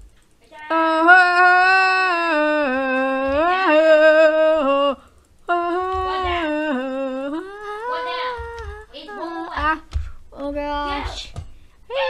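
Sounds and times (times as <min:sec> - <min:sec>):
person humming a tune: 0:00.7 - 0:09.8.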